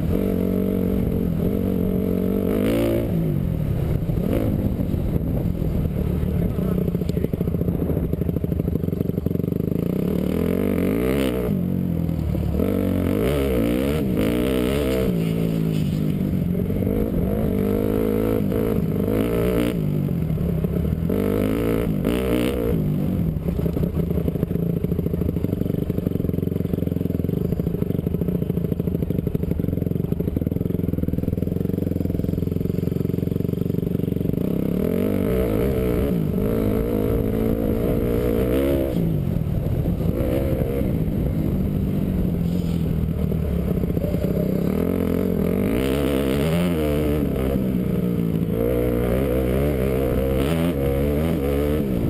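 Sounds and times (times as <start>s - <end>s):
motocross engine revving: 0.0s - 3.4s, 9.5s - 11.7s, 12.4s - 19.8s, 34.3s - 52.0s.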